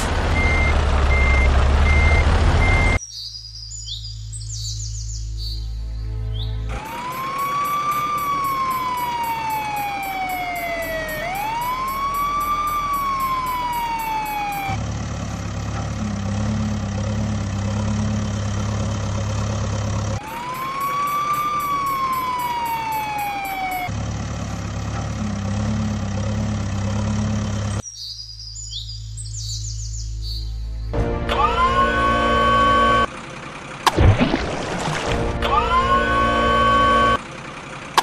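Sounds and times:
heavy vehicle engine rumble: 0:00.0 - 0:03.0, 0:06.3 - 0:27.8, 0:30.5 - 0:38.0
emergency vehicle siren wailing: 0:06.7 - 0:14.9, 0:20.2 - 0:23.9, 0:31.3 - 0:33.1, 0:35.1 - 0:37.2.

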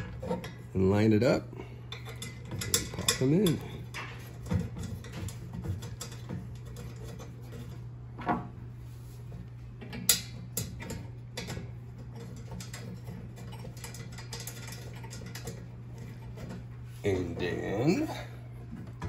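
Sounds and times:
steady low hum: 0:00.0 - 0:19.0
metal parts clicking and knocking: 0:09.9 - 0:16.5.

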